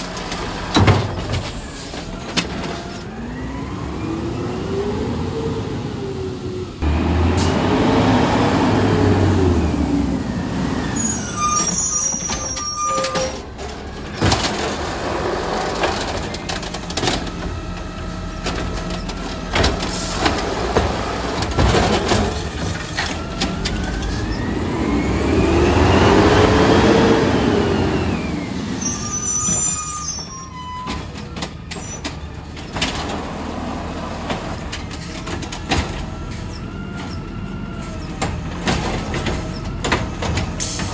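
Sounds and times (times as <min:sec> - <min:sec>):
cart clunks and knocks: 0:00.0 - 0:02.9, 0:11.6 - 0:17.5, 0:18.4 - 0:23.9, 0:34.1 - 0:37.2, 0:38.1 - 0:40.9
garbage truck engine revving: 0:00.0 - 0:40.9
short high squeals: 0:10.8 - 0:13.4, 0:28.8 - 0:31.0.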